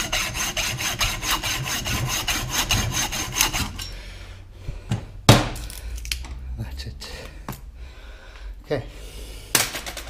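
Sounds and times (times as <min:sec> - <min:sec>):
hacksaw sawing rubber: 0:00.0 - 0:03.9.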